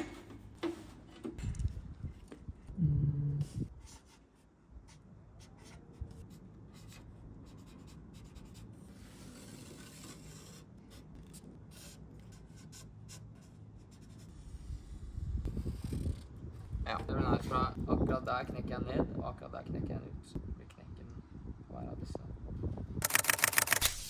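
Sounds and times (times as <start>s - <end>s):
marker scratching on metal: 3.8s - 15.0s.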